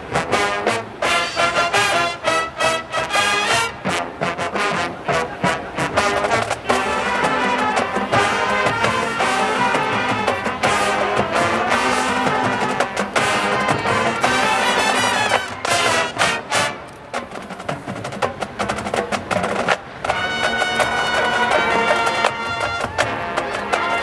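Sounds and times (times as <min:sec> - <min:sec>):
marching band playing: 0:00.0 - 0:24.0
sharp percussion strikes: 0:01.0 - 0:02.1.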